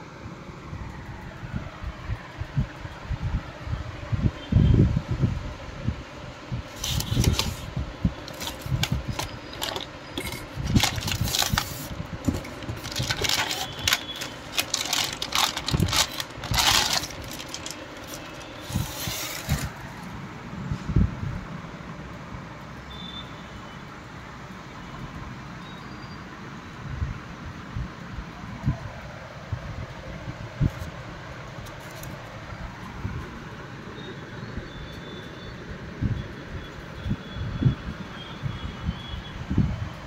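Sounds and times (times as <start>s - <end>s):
plastic bag crinkling: 6.7s - 20.0s.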